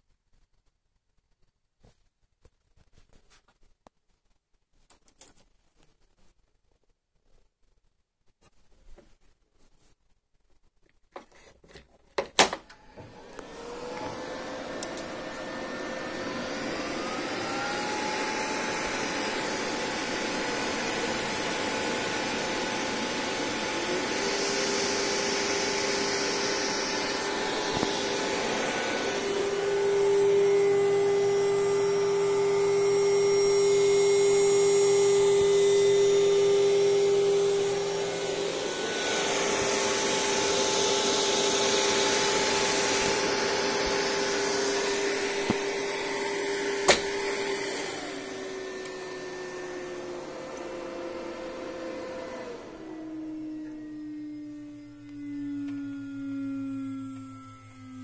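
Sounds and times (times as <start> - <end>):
whirring hum: 12.6 - 58.0
electric motor whine: 12.8 - 58.0.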